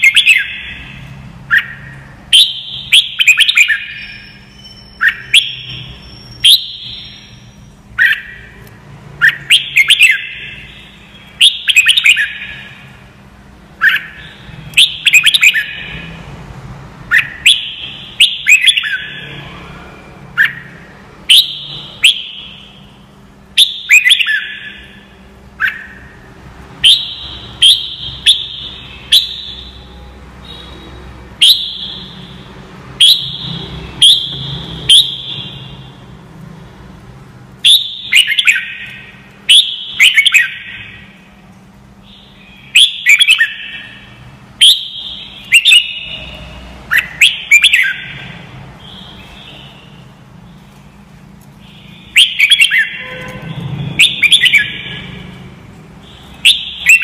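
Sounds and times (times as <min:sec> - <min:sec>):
bird singing whistled notes: 0:00.0 - 0:08.6, 0:09.2 - 0:12.8, 0:13.8 - 0:16.1, 0:17.1 - 0:19.6, 0:20.4 - 0:23.0, 0:23.6 - 0:26.1, 0:26.8 - 0:32.4, 0:33.0 - 0:35.9, 0:37.6 - 0:41.1, 0:42.0 - 0:50.6, 0:51.6 - 0:55.4, 0:56.0 - 0:57.0.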